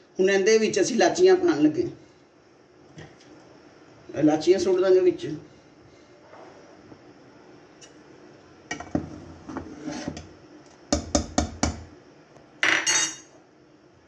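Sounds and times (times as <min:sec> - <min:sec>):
metal kitchenware clinking on pot: 0:12.6 - 0:13.3.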